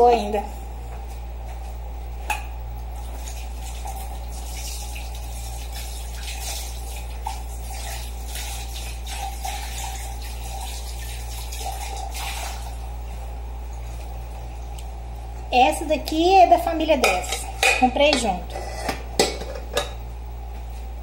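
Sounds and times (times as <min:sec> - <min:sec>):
kitchen tap running: 0:03.0 - 0:13.1
water splashing into sink: 0:03.1 - 0:12.9.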